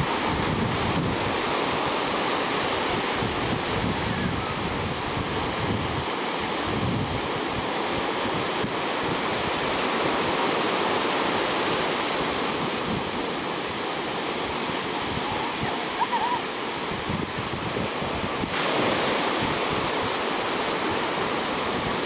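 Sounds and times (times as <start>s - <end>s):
ocean surf breaking: 0.0s - 22.0s
wind buffeting microphone: 0.0s - 22.0s.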